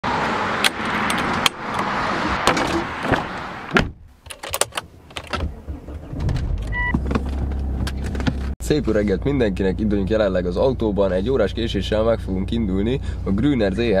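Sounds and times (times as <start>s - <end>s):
outdoor noise: 0.0s - 8.6s
car engine starting and idling: 0.1s - 14.0s.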